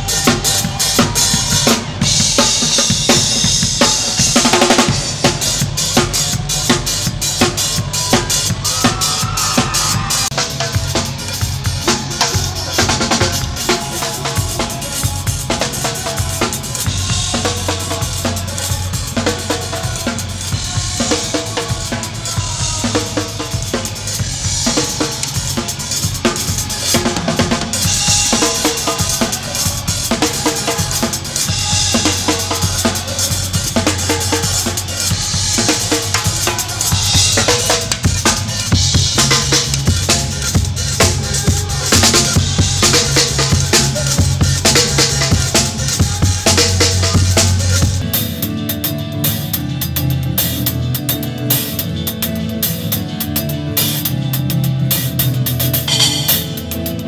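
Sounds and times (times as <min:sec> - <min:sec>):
band playing: 0:00.0 - 0:57.0
rock drum beat: 0:00.0 - 0:57.0
drum hits: 0:55.9 - 0:57.0.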